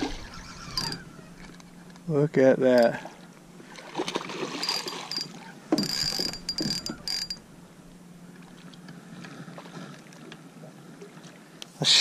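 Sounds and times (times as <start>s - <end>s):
fishing reel line whine: 0.0s - 8.5s.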